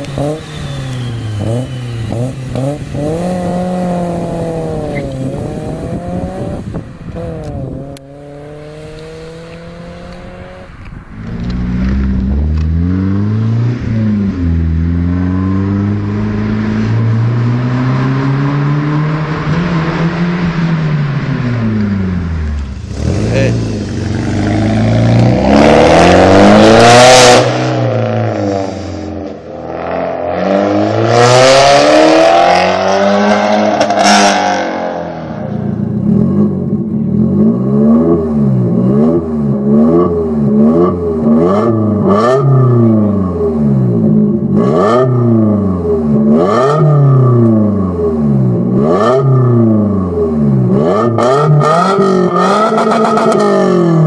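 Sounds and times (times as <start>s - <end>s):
car engine blipped: 0.0s - 54.0s
car engine revving: 0.0s - 54.0s
exhaust cracks: 8.7s - 14.0s.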